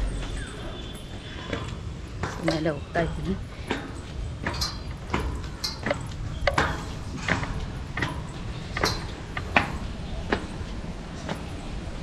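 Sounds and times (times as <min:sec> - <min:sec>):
footsteps climbing stairs: 0:00.0 - 0:12.0.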